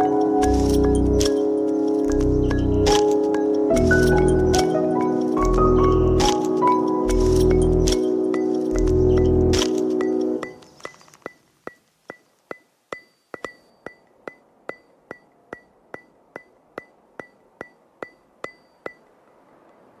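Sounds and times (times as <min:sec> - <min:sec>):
ticking beat music: 0:00.0 - 0:10.7.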